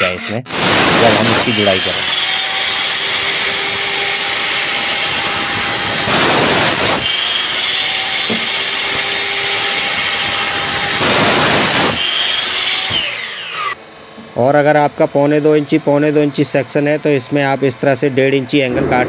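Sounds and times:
saw blade cutting metal: 0:00.0 - 0:13.8
mitre saw whining: 0:00.0 - 0:19.0.

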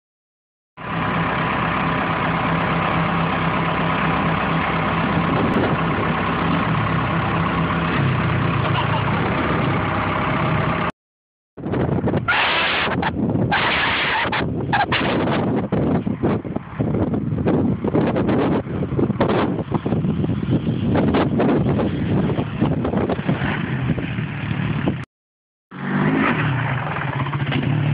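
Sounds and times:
vehicle engine idling: 0:00.8 - 0:10.9
wind buffeting microphone: 0:05.0 - 0:10.9, 0:11.6 - 0:25.0.

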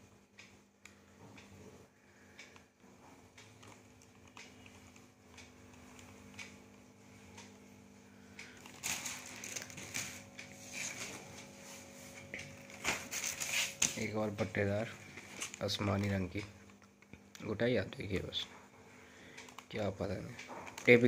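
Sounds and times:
paper kites rustling: 0:08.6 - 0:14.2.

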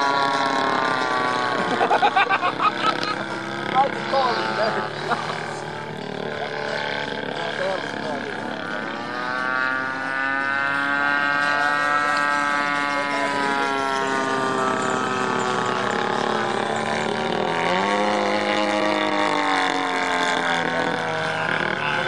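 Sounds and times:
model plane engine and propeller: 0:00.0 - 0:22.0.

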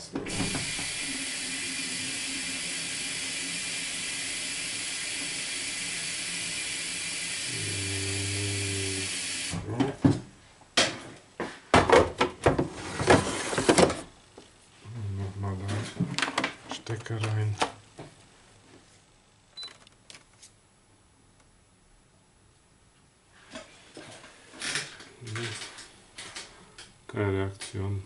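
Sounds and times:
coffee machine hiss: 0:00.3 - 0:09.6.

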